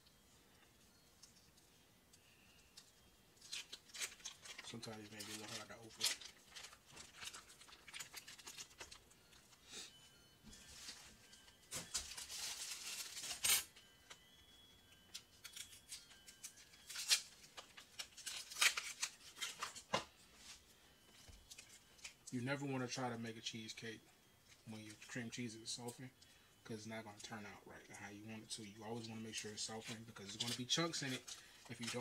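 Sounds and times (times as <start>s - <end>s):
foil wrappers crinkling and tearing: 2.8s - 9.2s, 10.8s - 13.6s, 15.1s - 20.0s, 28.4s - 32.0s
cheese scraped off foil: 3.4s - 9.0s, 11.9s - 13.4s, 15.4s - 19.9s.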